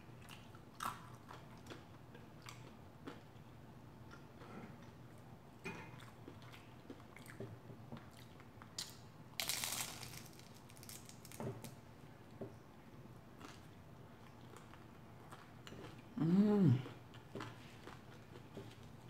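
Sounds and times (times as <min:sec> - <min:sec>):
chewing food: 0:00.2 - 0:05.2, 0:05.9 - 0:09.0, 0:13.4 - 0:19.0
loud crunch of crisp wrapper: 0:08.8 - 0:11.7.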